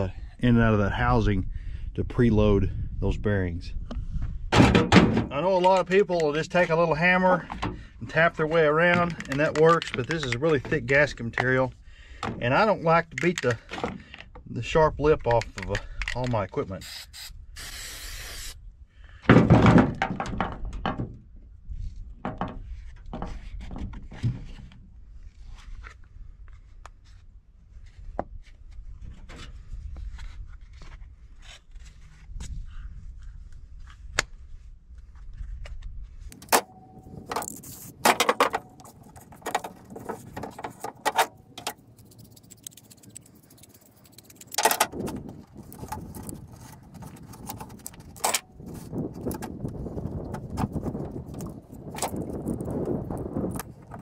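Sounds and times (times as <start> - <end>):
paper and metal scraping: 37.1 - 51.0.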